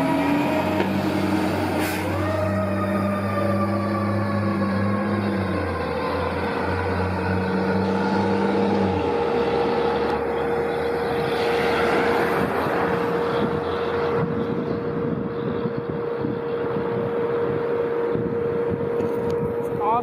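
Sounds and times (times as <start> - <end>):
car driving past: 0.0 - 14.9
low horn-like sound: 0.0 - 20.0.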